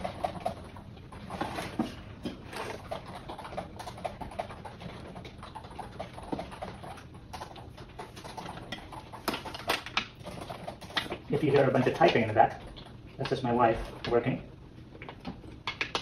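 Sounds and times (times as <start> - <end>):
keyboard typing: 2.6 - 13.4.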